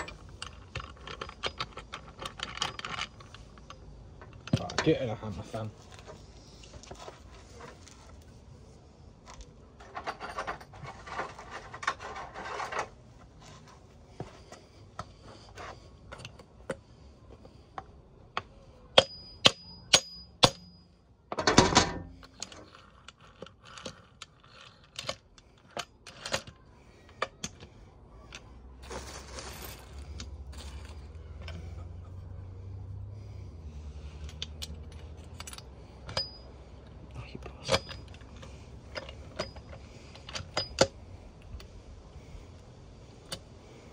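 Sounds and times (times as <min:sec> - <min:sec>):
metal parts clinking: 0:00.0 - 0:05.2, 0:09.3 - 0:13.0, 0:18.9 - 0:32.3, 0:34.0 - 0:36.6, 0:37.4 - 0:41.6.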